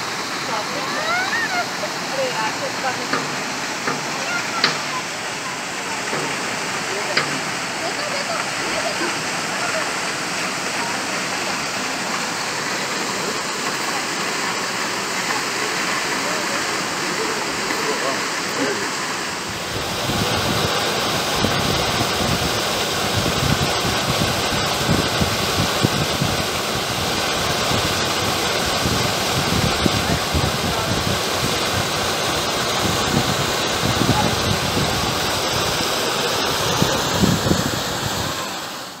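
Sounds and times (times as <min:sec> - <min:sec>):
stream cascading over boulders: 0:00.0 - 0:39.0.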